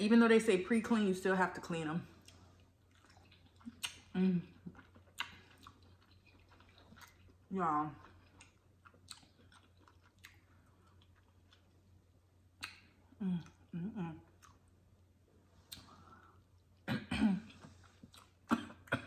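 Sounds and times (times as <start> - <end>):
wet mouth clicks and smacks: 12.6 - 13.0
woman humming: 13.2 - 14.3
throat clearing: 16.9 - 17.7, 18.5 - 19.0.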